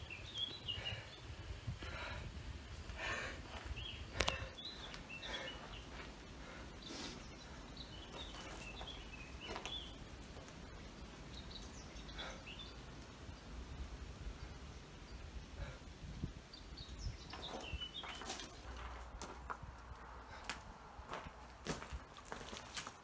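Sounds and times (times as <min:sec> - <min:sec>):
small birds chirping: 0:00.0 - 0:20.7
footsteps on leaf litter: 0:20.5 - 0:23.0.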